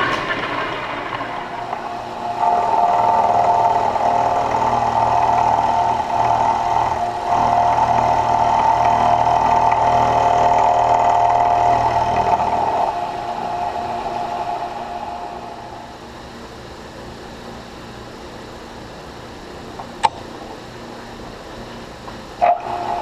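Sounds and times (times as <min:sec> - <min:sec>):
milling machine cutting steel: 0:00.0 - 0:16.2, 0:22.4 - 0:23.0.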